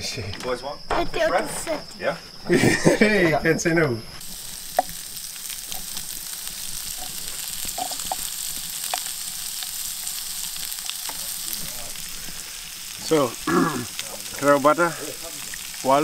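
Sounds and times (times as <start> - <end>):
fish sizzling in a frying pan: 4.2 - 16.0
faint clicks and pops: 4.7 - 9.2.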